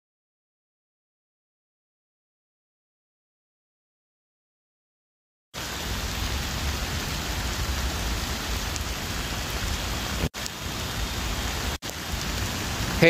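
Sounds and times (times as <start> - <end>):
heavy rain falling: 5.6 - 13.0.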